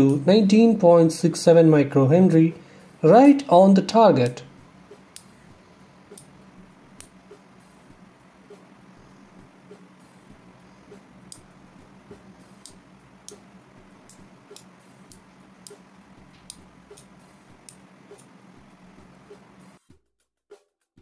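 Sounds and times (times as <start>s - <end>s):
faint steady hum: 0.0s - 19.8s
rotary switch detents clicking: 16.4s - 18.3s.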